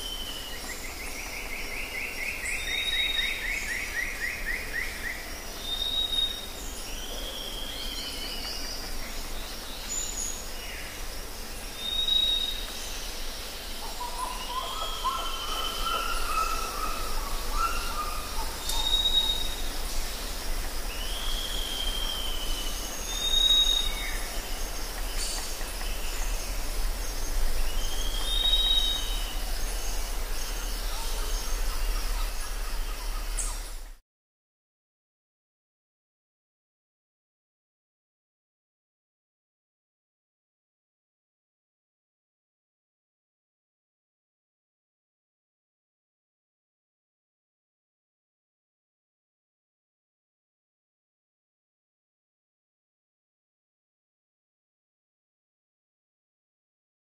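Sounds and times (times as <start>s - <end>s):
background hiss and rumble: 0.0s - 34.0s
birds chirping: 0.0s - 34.0s.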